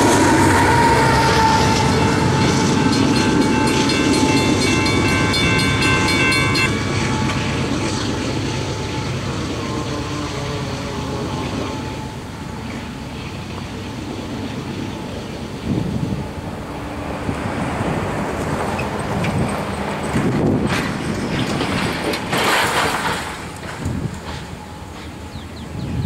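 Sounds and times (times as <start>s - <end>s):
distant freight train rumble: 0.0s - 26.0s
wind gusting on microphone: 13.1s - 24.6s, 25.6s - 26.0s.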